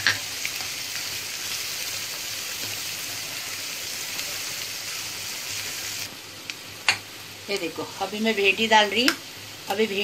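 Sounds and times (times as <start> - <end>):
food sizzling in hot oil: 0.0 - 10.0.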